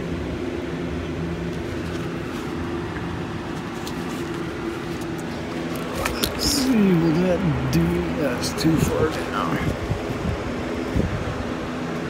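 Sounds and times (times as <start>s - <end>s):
low machine hum: 0.0s - 12.0s.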